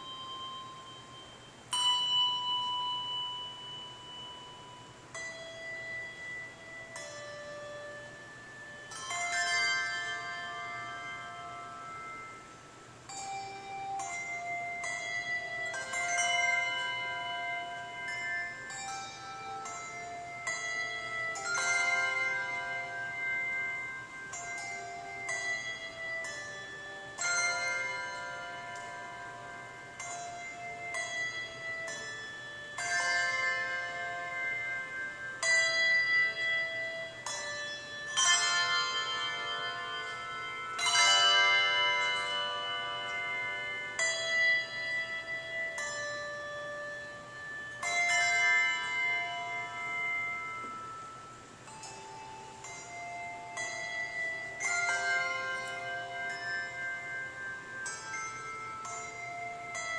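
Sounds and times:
handbell chords ringing: 0.0s - 59.9s.

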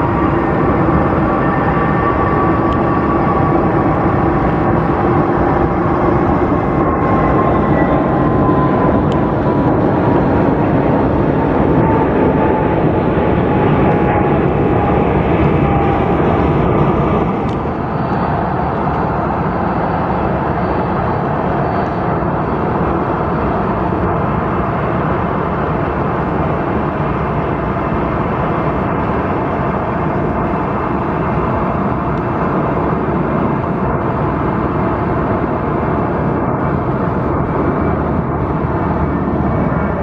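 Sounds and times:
jet engines at takeoff thrust: 0.0s - 40.0s.

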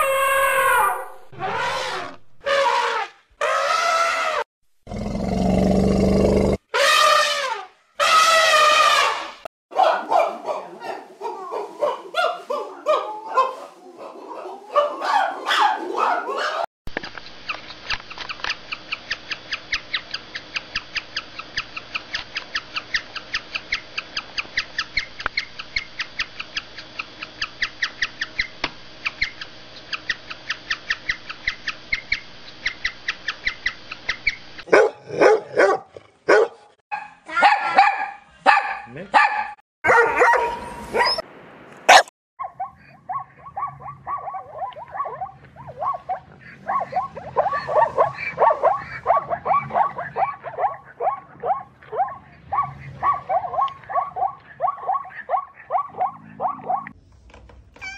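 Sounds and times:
zebras barking: 41.9s - 57.0s.

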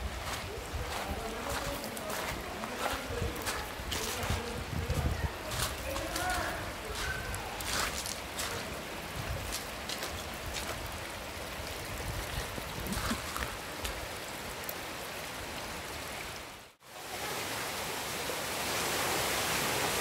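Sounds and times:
small waterfall pouring: 0.0s - 20.0s
stream running over stones: 0.0s - 20.0s.

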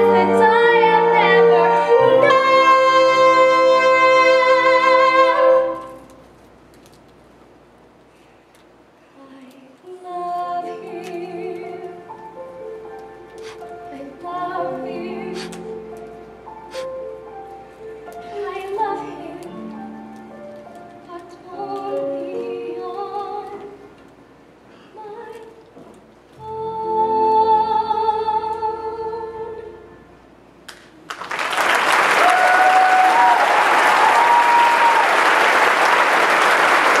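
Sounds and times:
musical theatre ballad singing: 0.0s - 6.0s, 9.2s - 24.0s, 26.4s - 30.2s
audience applause: 31.1s - 37.0s
audience whooping: 31.6s - 37.0s.

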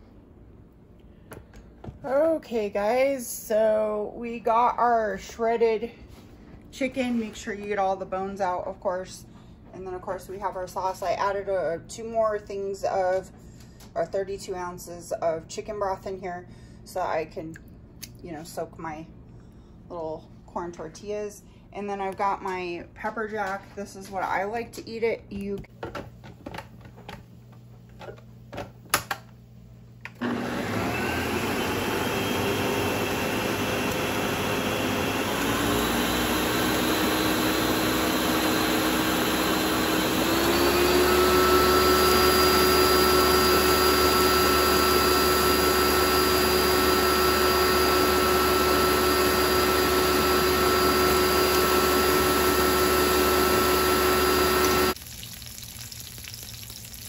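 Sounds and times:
kitchen appliance motor whirring: 30.2s - 55.0s.

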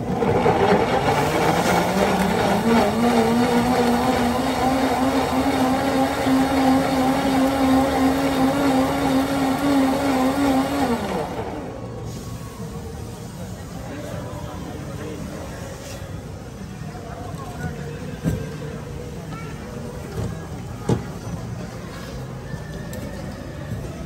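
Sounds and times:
blender motor whine: 0.0s - 11.9s.

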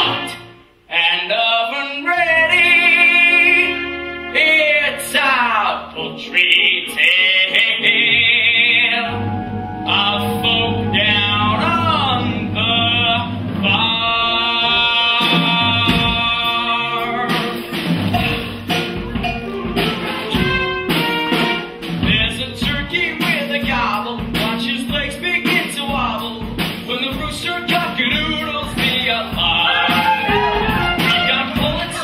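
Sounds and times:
cast singing: 2.3s - 18.4s
instrumental accompaniment: 2.5s - 32.0s
percussion hits: 17.3s - 32.0s.

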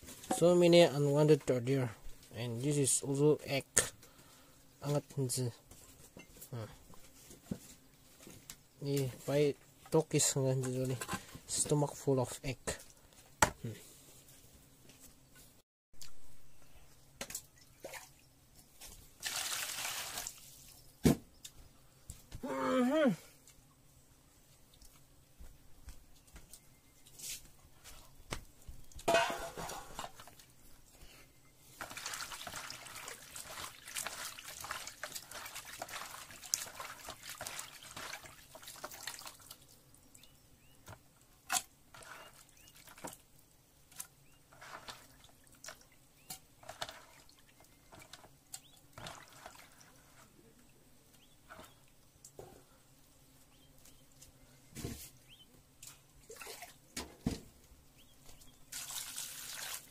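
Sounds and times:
hands sloshing water in basin: 17.6s - 18.2s, 31.8s - 39.6s, 56.2s - 56.8s, 58.7s - 59.9s.

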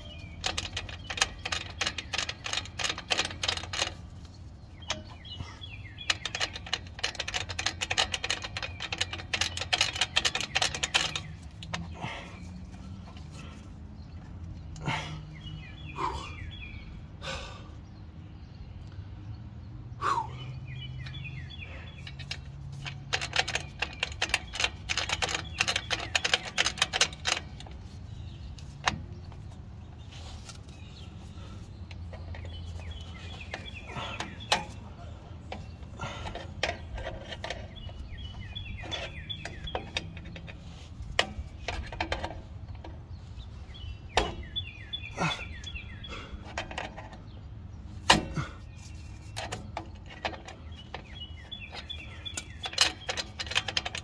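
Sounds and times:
small metal clicks and clinks: 0.0s - 11.9s, 21.9s - 28.0s, 49.0s - 54.0s
fast metal ticking: 0.0s - 12.2s, 21.0s - 29.6s, 48.0s - 54.0s.

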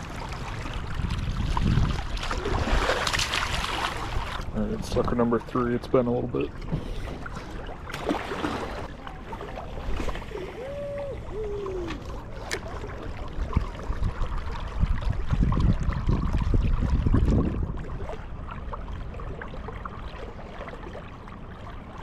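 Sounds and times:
river water flowing: 6.4s - 14.8s.

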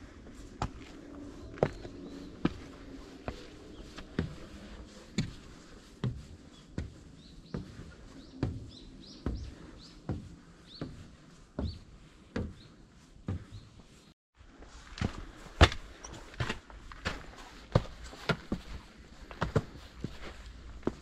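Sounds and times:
footsteps on wooden stairs: 0.2s - 14.0s, 14.9s - 21.0s
bird chirping: 6.5s - 11.0s.

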